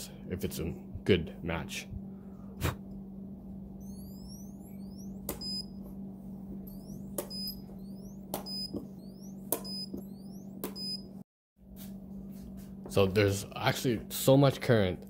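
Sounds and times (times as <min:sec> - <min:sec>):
steady low hum: 0:00.0 - 0:15.0
short high electronic beep: 0:03.8 - 0:05.7, 0:06.7 - 0:11.1.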